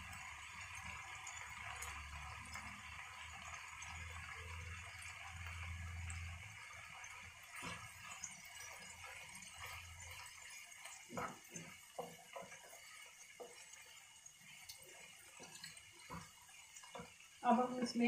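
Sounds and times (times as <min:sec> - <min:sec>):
vegetables sizzling in a pan: 0:00.0 - 0:18.0
wooden spatula scraping a pan: 0:07.5 - 0:18.0.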